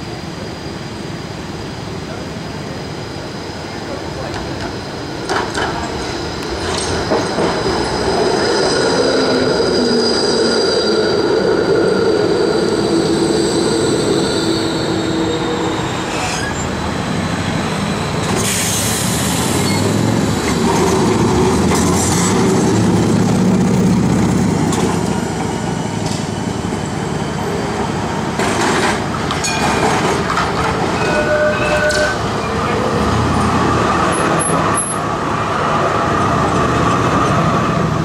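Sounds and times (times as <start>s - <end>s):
tram passing with low rumble: 0.0s - 38.0s
tram wheels on steel rails: 3.6s - 38.0s.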